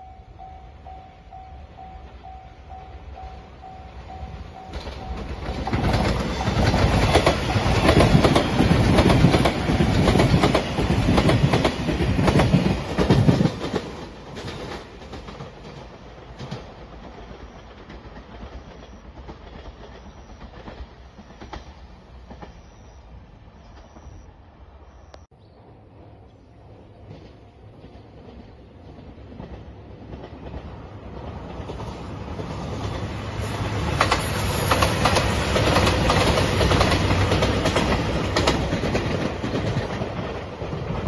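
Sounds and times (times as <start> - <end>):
train wheels clattering over rails: 4.4 - 22.9, 27.0 - 41.0.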